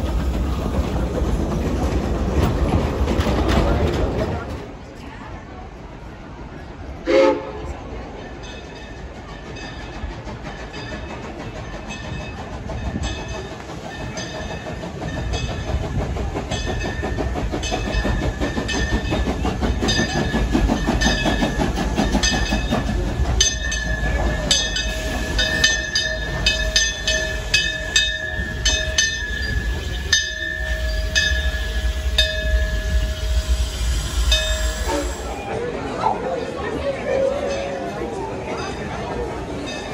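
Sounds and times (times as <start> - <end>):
train rolling low rumble: 0.0 - 39.9
wheels clicking over rail joints: 8.5 - 33.2.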